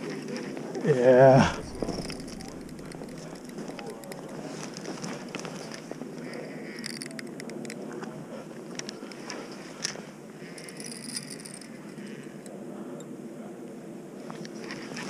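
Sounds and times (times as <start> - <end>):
small clicks and rattles: 1.6 - 8.1, 10.6 - 12.5.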